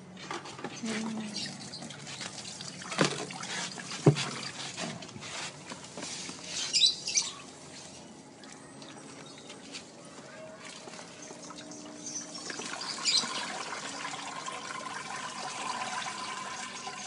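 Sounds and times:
wet trickling: 0.9 - 5.2
wet litter sliding and spilling: 2.0 - 6.8.

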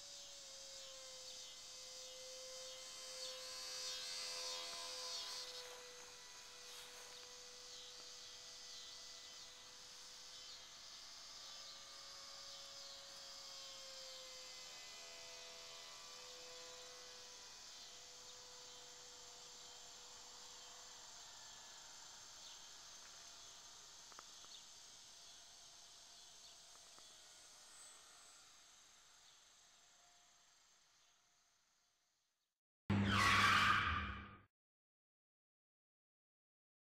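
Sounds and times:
model plane motor whine: 0.0 - 32.1.

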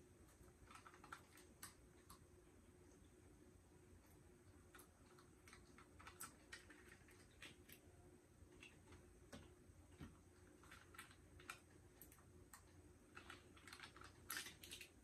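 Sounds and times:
plastic cups crinkling and clicking: 0.4 - 2.2, 4.6 - 7.9, 8.5 - 15.0.

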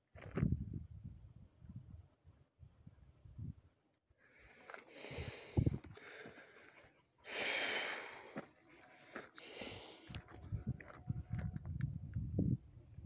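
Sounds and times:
heavy breathing: 4.2 - 10.4
footsteps on trail: 4.4 - 11.8.

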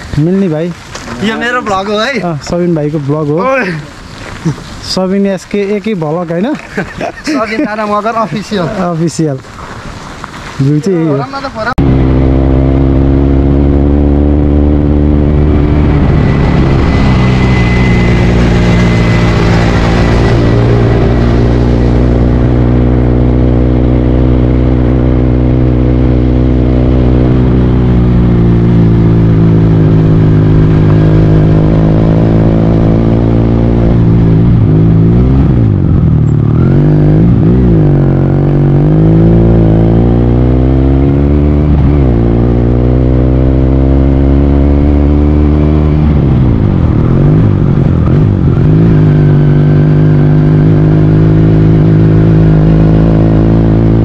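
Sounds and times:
vehicle engine running: 11.8 - 54.0.

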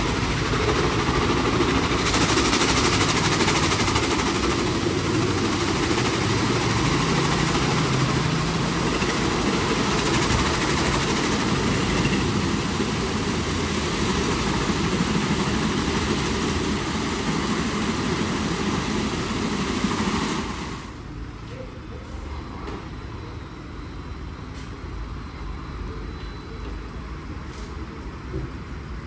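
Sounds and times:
car wash machinery rushing: 0.0 - 21.5.

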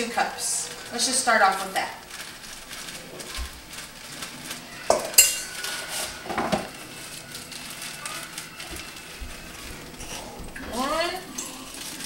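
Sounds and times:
measuring cup clinking on bowl: 5.2 - 5.6
scraping clinks: 5.2 - 5.6.

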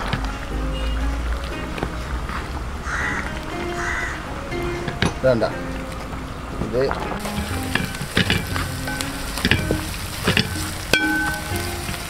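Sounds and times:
food sizzling in hot oil: 7.2 - 12.0.

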